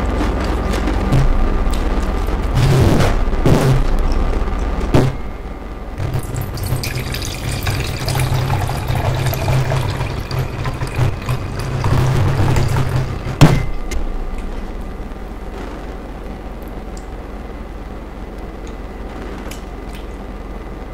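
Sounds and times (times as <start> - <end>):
liquid pouring into mug: 6.2 - 13.0.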